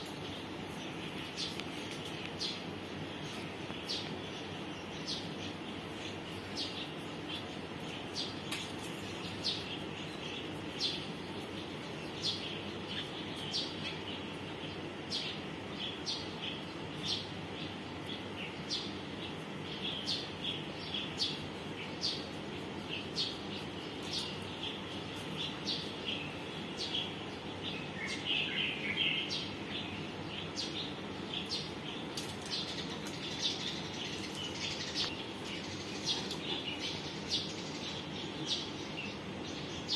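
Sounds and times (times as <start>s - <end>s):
small birds chirping: 0.0s - 39.9s
steady background noise: 0.0s - 39.9s.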